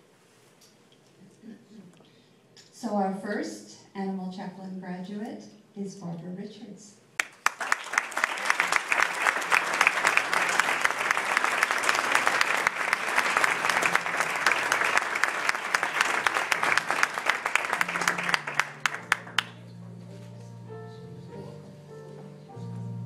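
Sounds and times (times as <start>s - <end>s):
audience applauding: 7.2s - 19.6s
quiet instrumental music: 17.7s - 23.0s.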